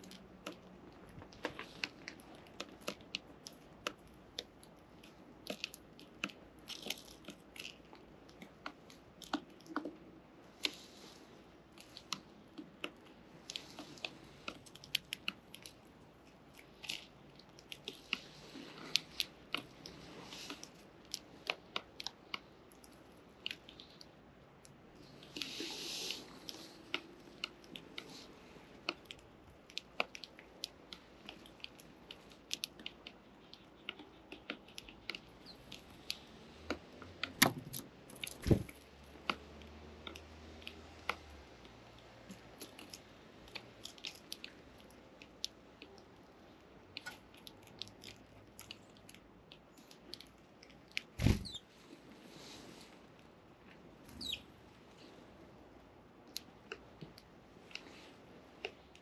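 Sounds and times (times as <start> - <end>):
sparrows cracking seeds: 25.0 - 36.3, 51.1 - 51.7, 54.1 - 54.5.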